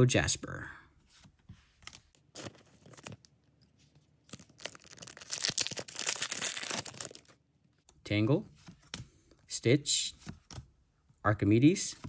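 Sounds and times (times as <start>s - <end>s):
foil wrapper crinkling: 2.3s - 3.3s, 4.2s - 7.4s
foil wrapper tearing open: 4.3s - 7.4s.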